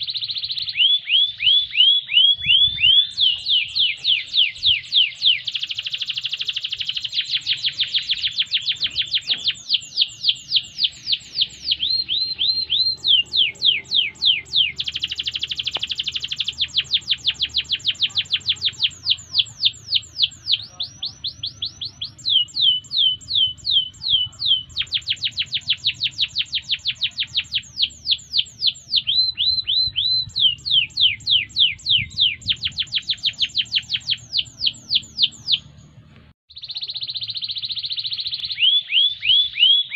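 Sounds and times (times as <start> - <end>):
canary singing trills: 0.0 - 39.9.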